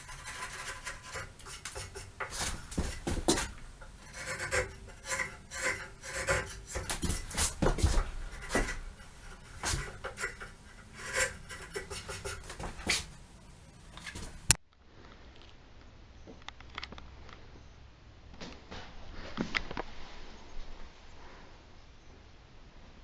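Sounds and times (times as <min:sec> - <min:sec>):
chisel scraping wood: 0:00.0 - 0:13.2
sharp knocks: 0:00.9 - 0:10.6.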